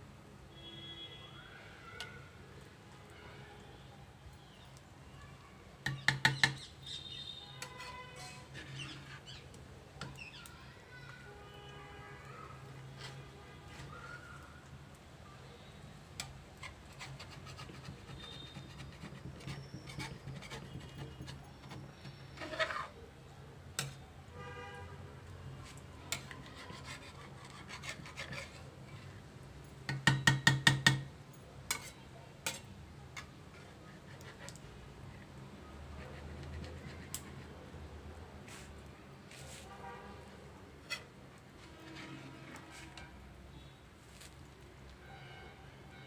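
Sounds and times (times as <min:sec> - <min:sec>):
metal spatula scraping a pan: 0:06.2 - 0:10.4, 0:12.5 - 0:14.4, 0:16.2 - 0:23.0, 0:23.8 - 0:24.0, 0:25.6 - 0:29.3, 0:31.7 - 0:35.3, 0:36.0 - 0:37.6, 0:40.8 - 0:44.3.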